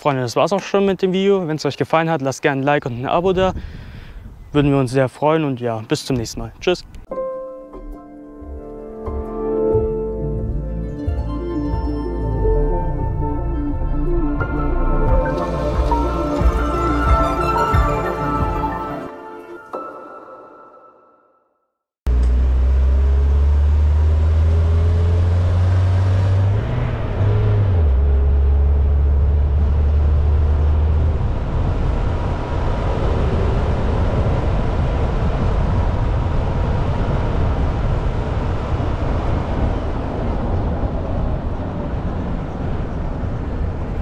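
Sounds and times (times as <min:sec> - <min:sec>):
vehicle engine humming: 0:09.7 - 0:18.8, 0:22.1 - 0:44.0.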